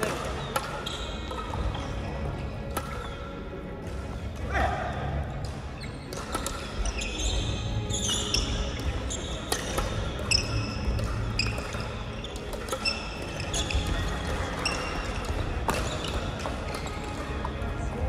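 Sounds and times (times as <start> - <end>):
shoes squeaking on gym floor: 0.0 - 4.4, 5.5 - 17.9
racket hits: 2.7 - 4.5, 5.4 - 7.3, 8.0 - 17.8.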